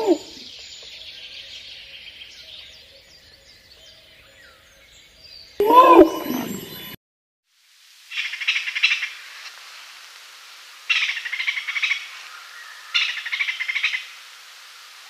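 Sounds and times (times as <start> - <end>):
faint hiss: 7.5 - 15.0.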